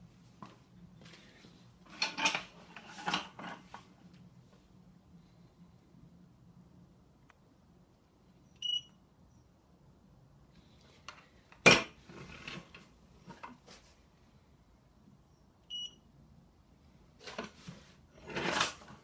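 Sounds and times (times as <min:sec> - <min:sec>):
metal scale clattering: 0:01.9 - 0:03.7
short electronic beeps: 0:08.6 - 0:08.9, 0:15.7 - 0:16.0.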